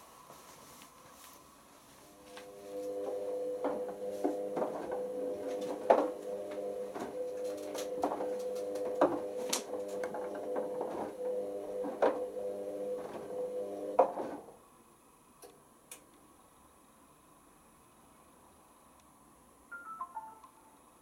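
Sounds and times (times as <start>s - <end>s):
washing machine motor humming: 0.0s - 14.1s.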